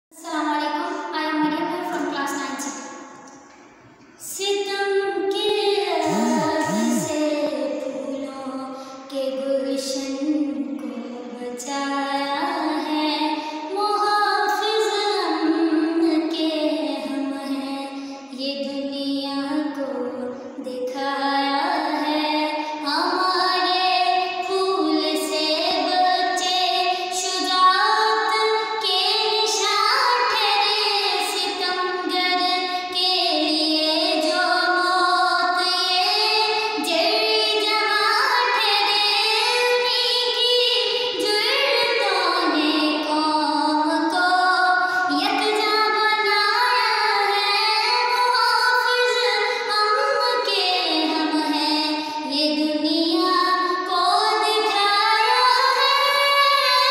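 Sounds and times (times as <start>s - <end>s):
girl singing solo: 6.0s - 7.3s.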